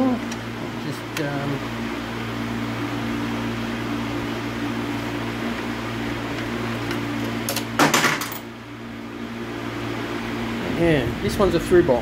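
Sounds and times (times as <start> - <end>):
workshop fan humming: 0.0 - 12.0
loose bolts clattering: 6.3 - 8.5.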